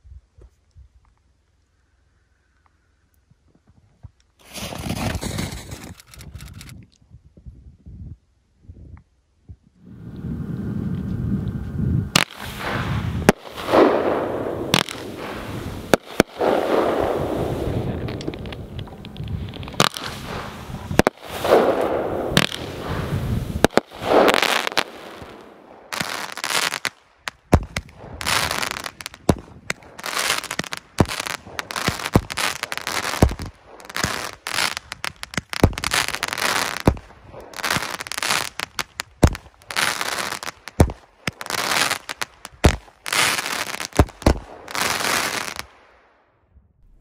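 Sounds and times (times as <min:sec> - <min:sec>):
fireworks bangs: 0:04.4 - 0:06.0, 0:09.9 - 0:45.9
fireworks crackling: 0:04.4 - 0:06.7, 0:09.8 - 0:45.9.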